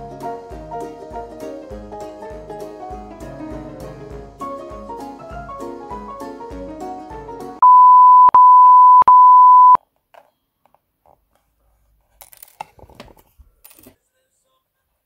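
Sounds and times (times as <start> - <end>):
plucked-string background music: 0.0 - 7.6
high electronic beep: 7.6 - 9.8.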